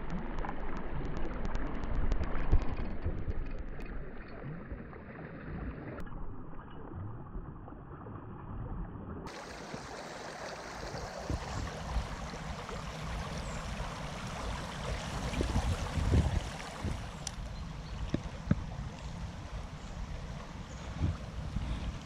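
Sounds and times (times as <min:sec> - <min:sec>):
river rushing over stones: 0:09.3 - 0:17.3.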